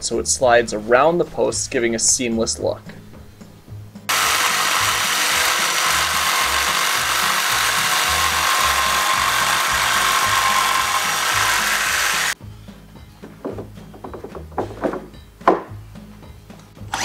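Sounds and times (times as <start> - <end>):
jigsaw cutting wood: 4.1 - 12.4.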